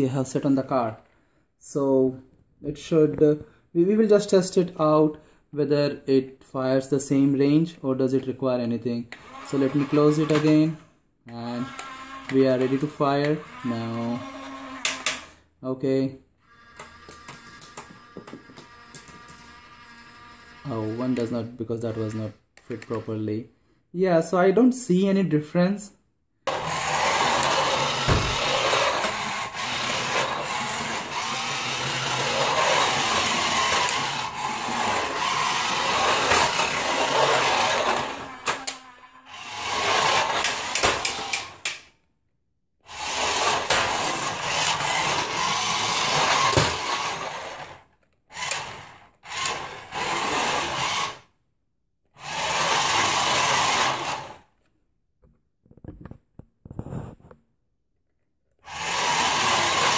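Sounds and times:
toy car motors whirring: 0:09.1 - 0:15.5, 0:16.4 - 0:23.2, 0:26.5 - 0:41.9, 0:42.9 - 0:51.3, 0:52.2 - 0:54.5, 0:58.6 - 0:59.9.

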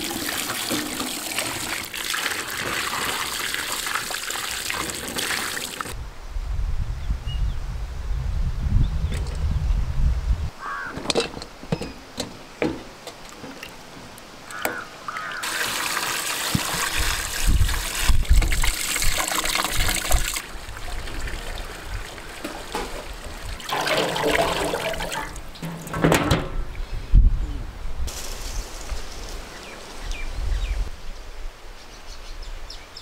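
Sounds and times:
water splashing over chicken: 0:15.1 - 0:25.7.

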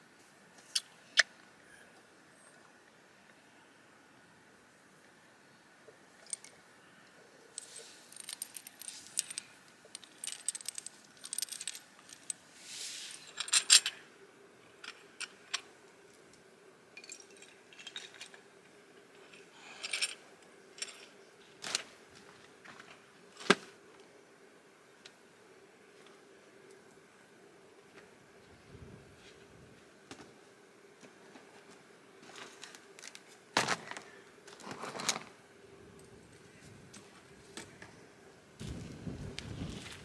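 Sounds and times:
clinks of small stones: 0:07.6 - 0:12.4, 0:17.0 - 0:18.5
short rustle: 0:07.6 - 0:13.7.

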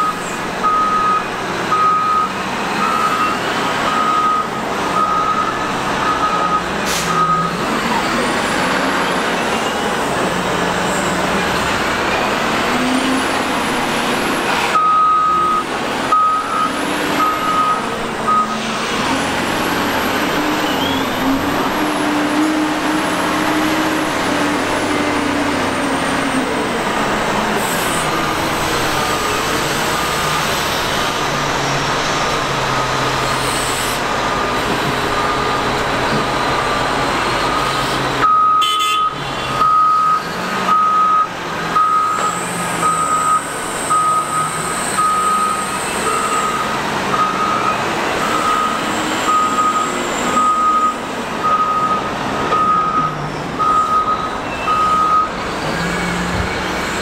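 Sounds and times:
backup alarm beeping: 0:46.3 - 0:55.3.

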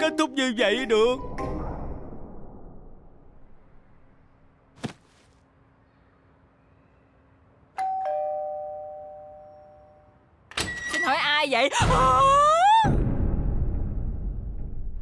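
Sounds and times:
two-note doorbell chime: 0:07.8 - 0:10.1.

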